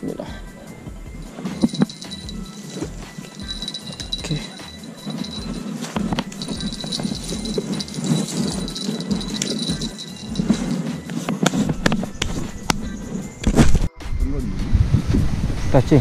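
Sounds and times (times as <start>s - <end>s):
fishing rod and reel rattling: 1.2s - 13.4s.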